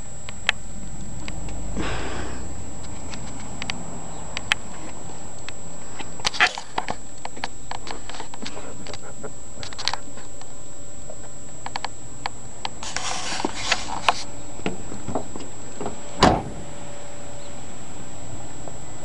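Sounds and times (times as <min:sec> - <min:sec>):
brief rustle: 0:12.8 - 0:14.3
car door opening: 0:14.6 - 0:16.8
car door shutting thud: 0:14.6 - 0:16.8.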